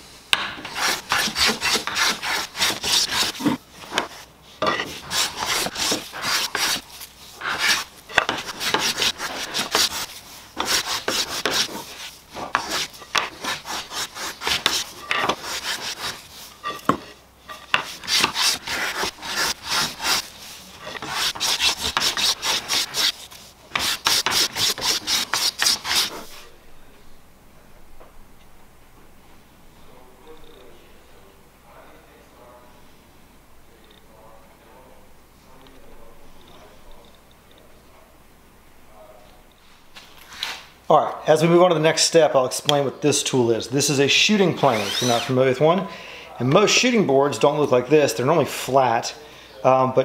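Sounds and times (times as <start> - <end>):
hand plane scraping wood: 0.6 - 26.4, 44.6 - 45.3.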